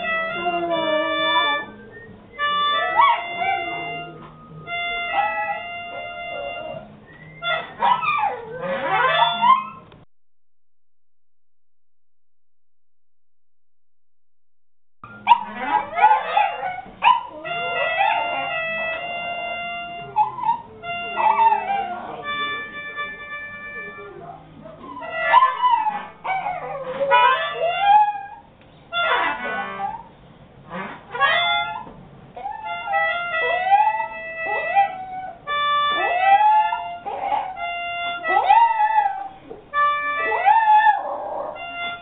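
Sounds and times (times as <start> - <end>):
accordion playing held notes: 0.0 - 7.0, 16.9 - 24.7, 32.7 - 34.6, 35.4 - 36.2, 36.8 - 38.5, 39.4 - 40.4
dog howling and whining: 0.0 - 9.8, 15.3 - 19.1, 24.8 - 28.5, 31.2 - 42.0.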